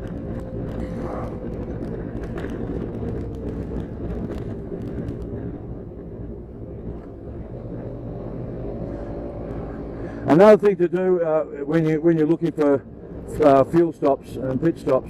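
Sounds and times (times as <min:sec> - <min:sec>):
wind rush on microphone: 0:00.0 - 0:11.1
motorcycle engine cruising: 0:00.0 - 0:12.0.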